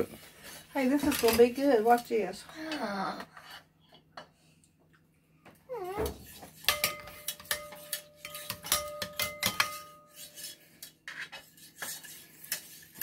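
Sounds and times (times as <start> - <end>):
metal whisk clinking in saucepan: 6.6 - 10.9.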